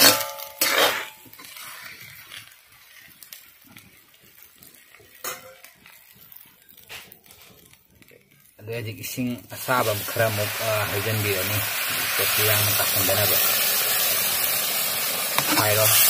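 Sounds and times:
metal spoon scraping a pan: 0.0 - 7.7, 15.4 - 16.0.

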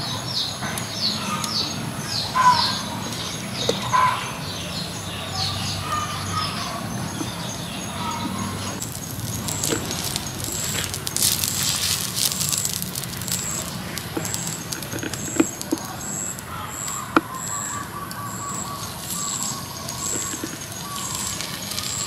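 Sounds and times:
birds chirping: 0.0 - 22.0
cooking oil sizzling on hot stone: 5.6 - 22.0.

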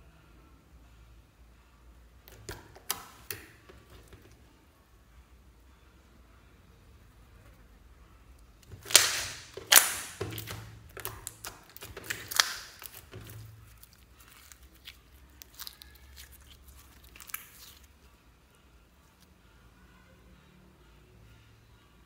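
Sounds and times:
slime crackling and popping: 2.3 - 4.0, 8.6 - 18.0.

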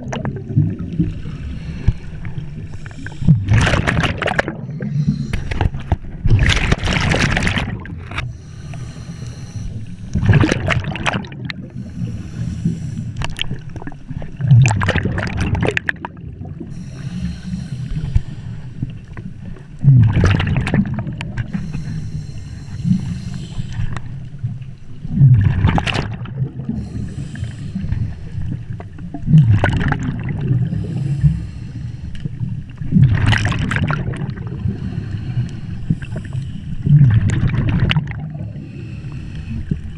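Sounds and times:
exhaled bubbles rushing: 0.0 - 8.2, 10.1 - 11.9, 13.2 - 16.8, 19.8 - 21.5, 24.5 - 27.0, 28.3 - 30.8, 32.8 - 34.9, 36.0 - 38.6
regulator hissing inhalation: 21.5 - 23.9.

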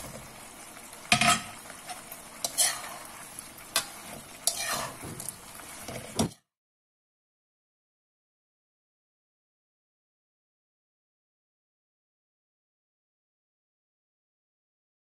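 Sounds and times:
sauce sizzling in a wok: 0.0 - 6.5
spatula knocking and scraping pan: 1.0 - 6.4.

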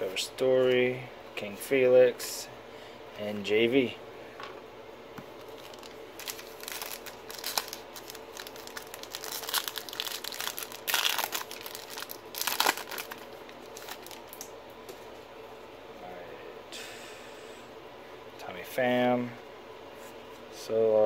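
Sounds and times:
foil wrapper crinkling and tearing: 5.4 - 14.5.

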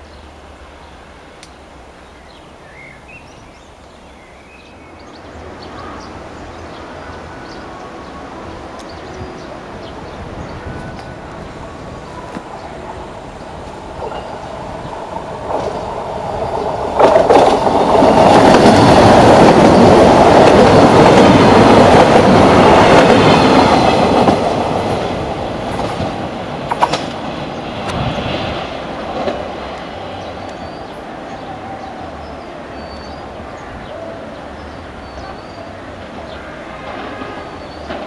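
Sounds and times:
diesel train passing: 0.0 - 38.0
wheels clacking over rail joints: 10.7 - 31.8, 35.1 - 38.0.

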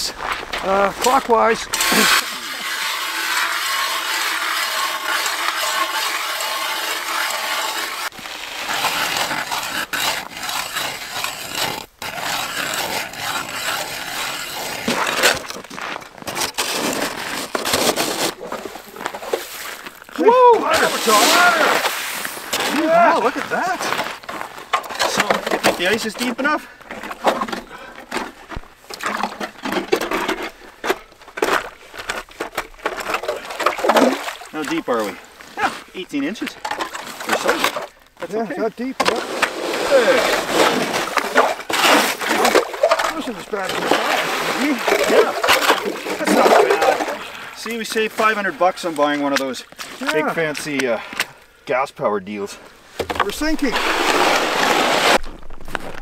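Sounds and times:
ice auger grinding through ice: 0.6 - 49.0, 53.2 - 56.0.

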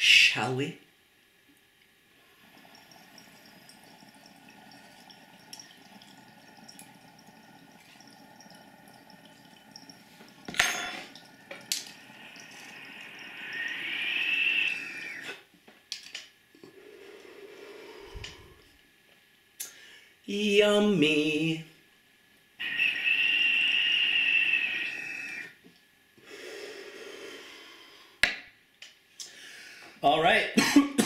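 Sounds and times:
water bubbling in glass pipe: 2.2 - 15.4, 22.6 - 25.6
whistle: 22.6 - 25.5.

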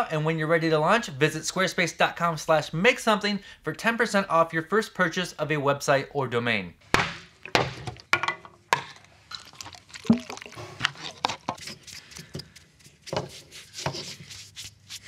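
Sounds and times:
metal cans set on wooden bench: 7.4 - 9.1
brush dabbing and rubbing: 11.5 - 15.0.

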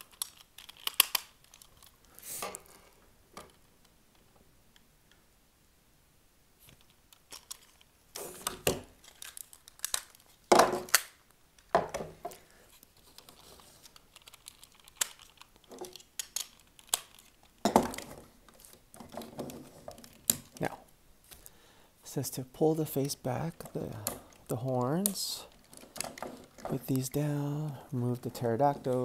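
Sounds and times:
plastic parts clicking and rattling: 0.0 - 4.2, 6.6 - 20.7, 22.8 - 29.0
paper rustling: 12.3 - 20.6.

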